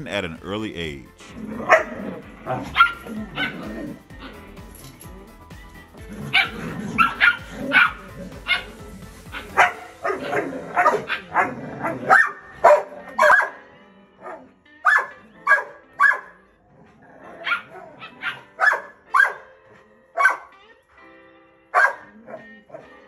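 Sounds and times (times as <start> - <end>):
puppy barking: 1.6 - 4.0, 6.3 - 16.5, 17.3 - 20.6, 21.7 - 23.0.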